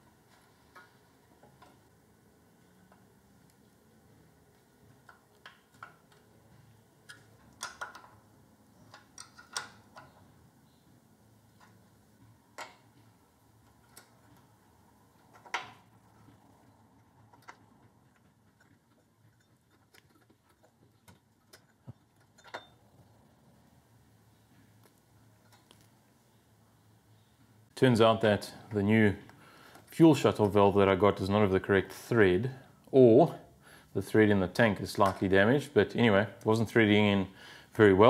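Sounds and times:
quiet room hum: 0.0s - 38.0s
metal parts clicking and tapping: 5.0s - 6.3s, 7.0s - 10.3s, 11.5s - 14.5s, 15.2s - 22.8s.

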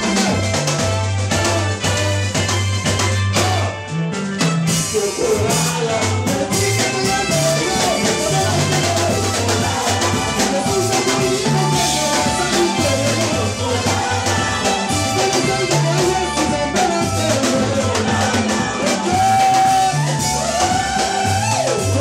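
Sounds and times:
bass line: 0.0s - 22.0s
drum kit: 0.0s - 22.0s
women singing together: 7.2s - 21.7s.

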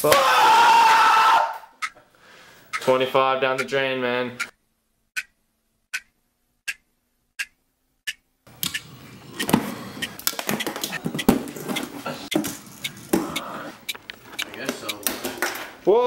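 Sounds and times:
clock ticking: 1.8s - 2.0s, 2.7s - 3.8s, 4.4s - 4.6s, 5.2s - 8.8s, 11.2s - 15.1s.

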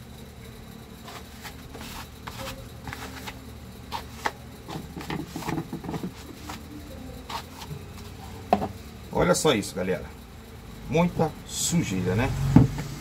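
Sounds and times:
cloth rubbing on plastic: 1.0s - 6.7s, 7.3s - 8.3s.

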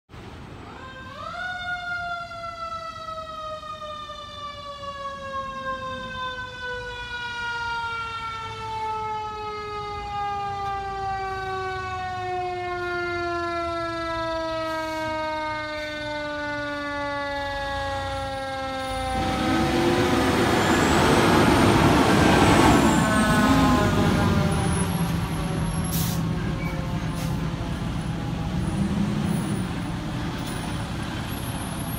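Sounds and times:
truck rushing noise: 18.6s - 31.9s.

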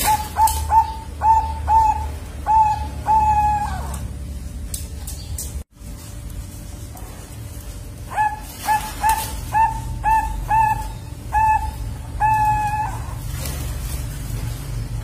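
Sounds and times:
dove cooing: 0.0s - 4.2s, 8.0s - 13.7s.

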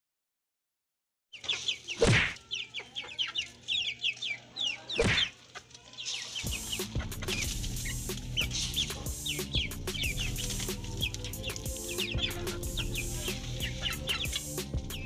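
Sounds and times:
chickens clucking and peeping: 1.3s - 15.0s.

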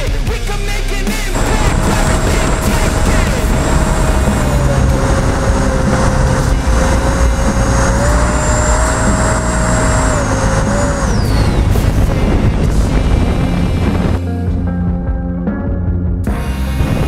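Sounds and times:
electric ducted fan whining: 1.3s - 14.3s
wind rush on camera: 1.4s - 14.2s.

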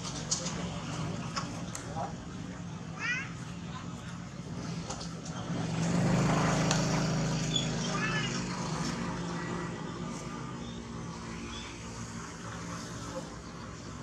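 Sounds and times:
vehicle engine passing: 3.9s - 14.0s.

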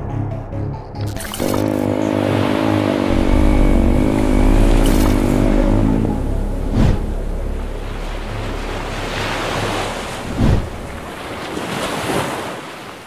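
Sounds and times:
ocean surf washing: 1.9s - 13.0s
low steady hum: 2.9s - 11.3s
dull low thump: 3.1s - 11.2s.

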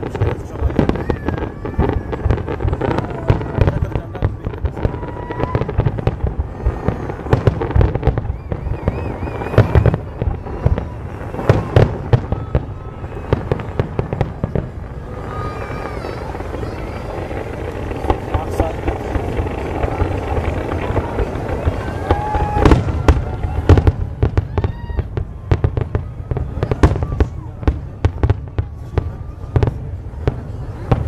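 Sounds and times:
fireworks bangs and crackles: 0.0s - 31.0s.

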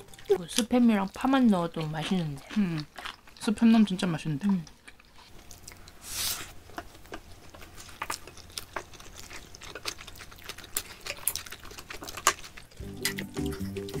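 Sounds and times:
people chewing: 0.0s - 14.0s.

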